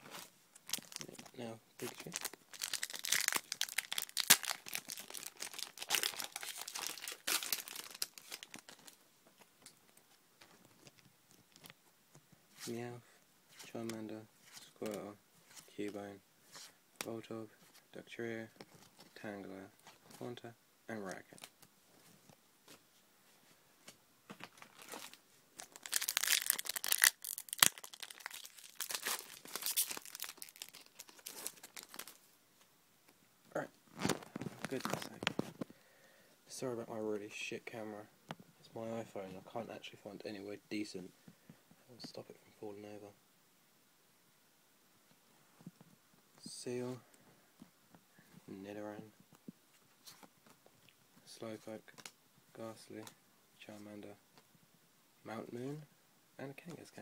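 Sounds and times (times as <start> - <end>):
foil wrapper tearing and crinkling: 0.6 - 1.2, 1.8 - 9.0, 24.6 - 32.2.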